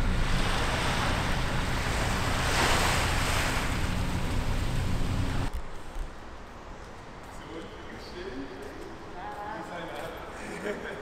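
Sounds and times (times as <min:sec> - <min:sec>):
small waves washing on sand: 0:00.0 - 0:05.5.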